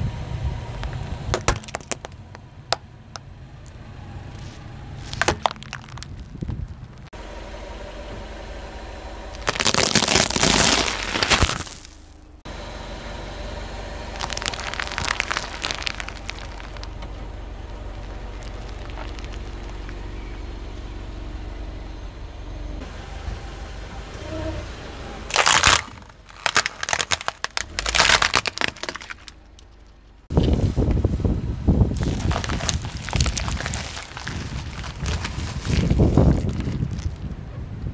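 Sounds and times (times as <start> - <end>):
car engine hum: 0.0 - 37.9
tyre crushing plastic objects: 0.8 - 2.4, 4.4 - 7.0, 9.3 - 12.0, 14.2 - 16.9, 17.9 - 19.9, 25.3 - 30.5, 32.0 - 37.2
crinkling crackles: 4.4 - 7.1, 9.3 - 12.1, 14.1 - 20.0, 25.3 - 30.7, 31.9 - 37.2
loud crack: 25.3 - 29.8.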